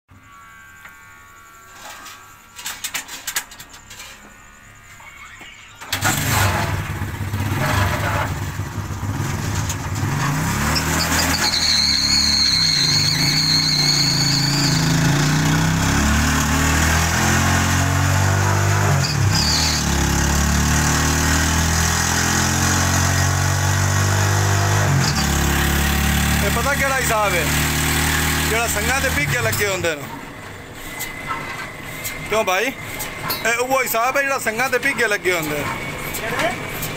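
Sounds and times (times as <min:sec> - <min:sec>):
high whine: 0:00.1 - 0:07.4
starter engine running: 0:05.2 - 0:11.1, 0:24.8 - 0:30.1.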